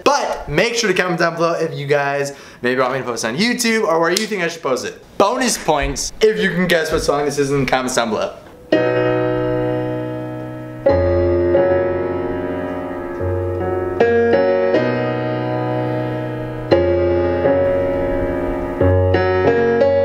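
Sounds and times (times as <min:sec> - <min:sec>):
electronic keyboard piano chords: 0:07.7 - 0:20.0.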